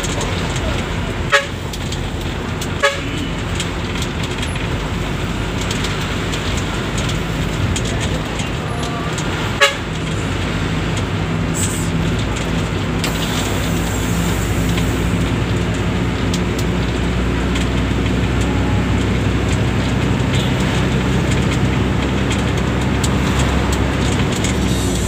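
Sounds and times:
bus engine and road noise: 0.0 - 25.0
bus horn toots: 1.2 - 1.9, 2.6 - 3.5, 8.5 - 10.2, 20.2 - 20.8.

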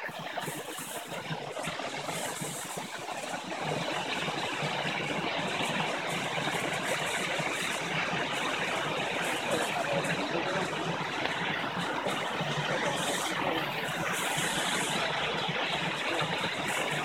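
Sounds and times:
waterfall rushing into pool: 0.0 - 17.0.

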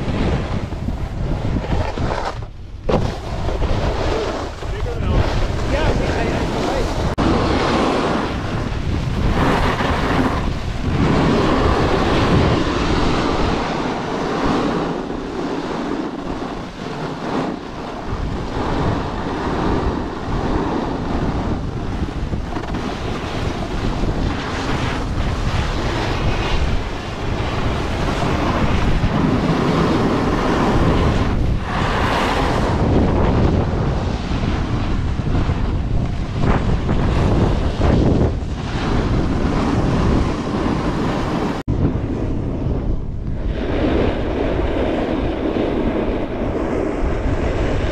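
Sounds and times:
snowboard scraping on snow: 0.0 - 47.9
wind rushing over microphone: 0.0 - 47.9.

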